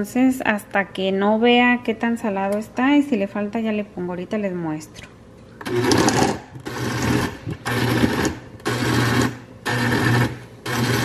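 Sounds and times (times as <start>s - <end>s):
blender pulsing: 5.6s - 11.0s.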